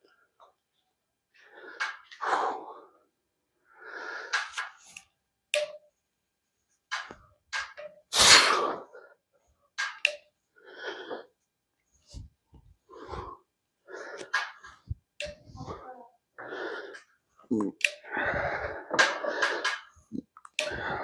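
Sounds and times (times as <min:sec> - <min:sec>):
man breathing forcefully: 0:12.1 - 0:15.8, 0:18.0 - 0:20.0, 0:20.6 - 0:21.0.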